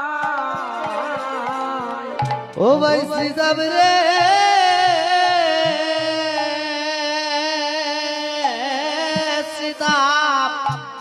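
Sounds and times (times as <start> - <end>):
hand drum beats: 0.0 - 6.7, 8.5 - 11.0.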